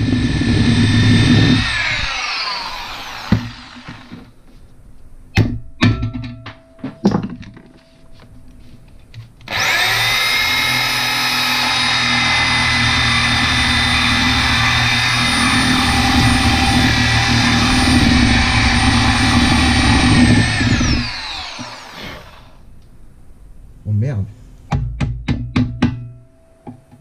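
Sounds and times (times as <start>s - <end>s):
electric drill drilling: 0.0s - 4.2s, 9.5s - 22.6s.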